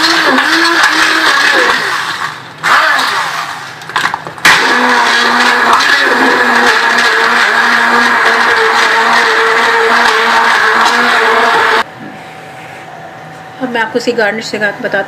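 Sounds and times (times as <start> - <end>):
electric blender running: 0.0 - 3.8, 4.5 - 11.9.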